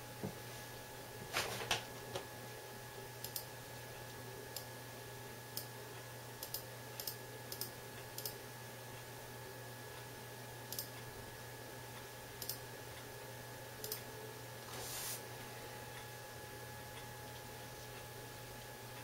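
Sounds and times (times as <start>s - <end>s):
computer mouse clicking: 3.2s - 3.5s, 6.4s - 8.4s, 10.7s - 11.0s, 12.4s - 12.6s, 13.8s - 14.1s.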